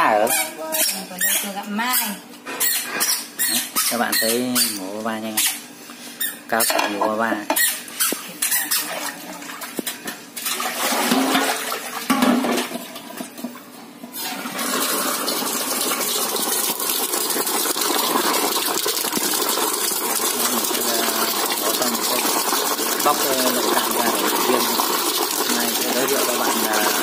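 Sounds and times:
tap water running into basin: 8.4 - 27.0.

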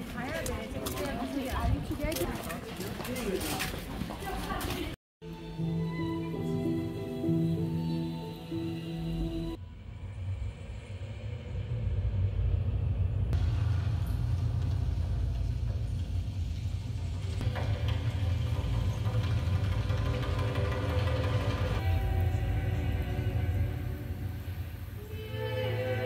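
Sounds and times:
deep steady rumble: 9.5 - 25.1.

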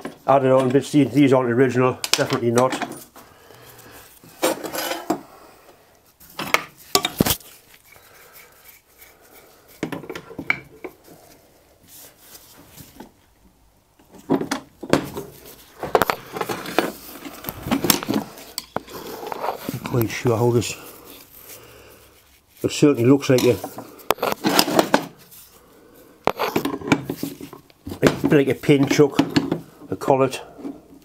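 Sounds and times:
tools clattering on metal bench: 2.1 - 3.2.

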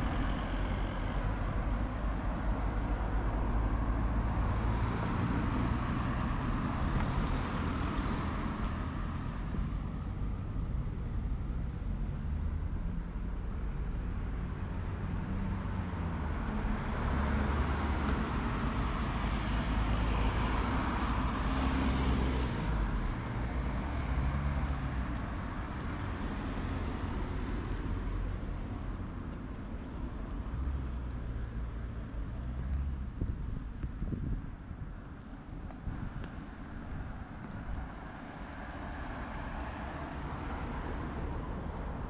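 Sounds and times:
wind rumble on microphone: 0.0 - 42.0
car passing: 35.5 - 42.0.

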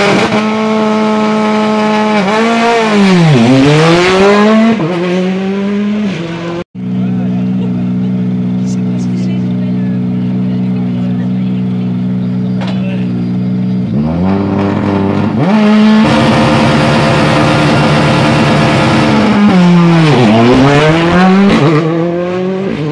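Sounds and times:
rally car engine revving: 0.0 - 22.9.

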